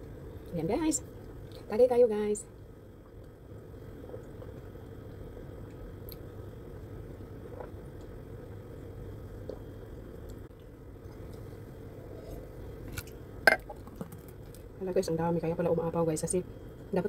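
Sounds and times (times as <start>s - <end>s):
low room hum: 0.0s - 17.0s
person drinking and swallowing: 3.0s - 6.3s, 7.4s - 8.1s, 9.4s - 9.8s, 11.1s - 14.6s.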